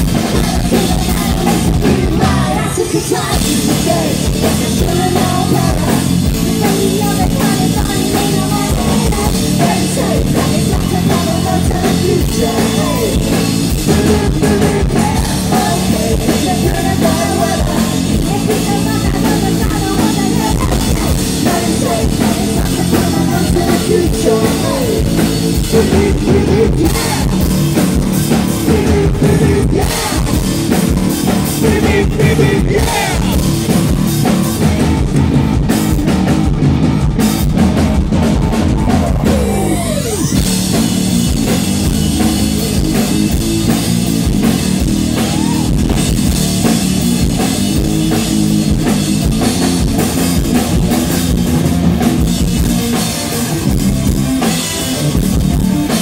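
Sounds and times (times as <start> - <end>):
person singing: 0.0 - 27.5, 28.6 - 30.8, 31.6 - 33.7
live rock band playing: 0.0 - 56.0.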